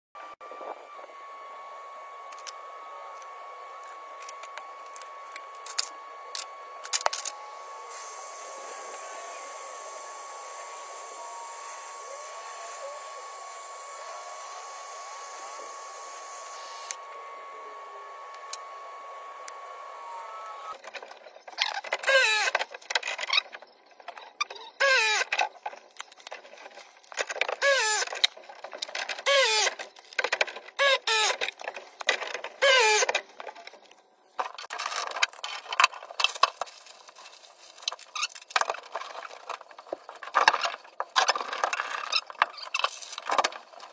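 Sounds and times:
press tool motor whining: 0.4s - 20.9s, 21.7s - 22.6s, 24.8s - 25.4s, 27.4s - 28.3s, 29.2s - 29.8s, 32.5s - 33.3s.

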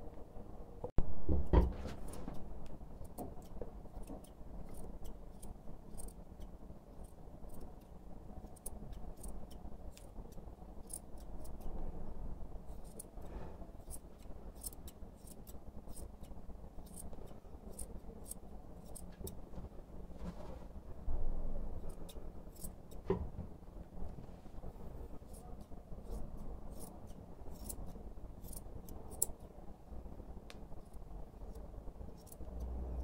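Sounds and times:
scissors snipping hair: 3.0s - 11.7s, 12.7s - 13.2s, 13.8s - 19.4s, 21.8s - 23.0s, 25.3s - 29.5s, 30.6s - 32.7s.

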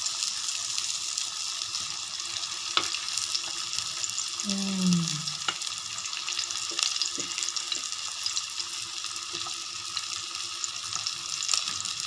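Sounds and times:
patties sizzling in oil: 0.0s - 12.0s.

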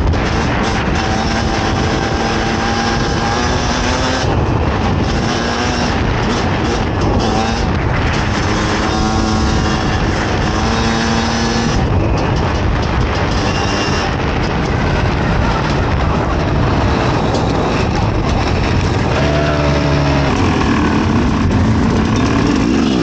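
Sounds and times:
motorcycle engine revving: 0.0s - 23.0s
steady rush of noise: 0.0s - 23.0s.

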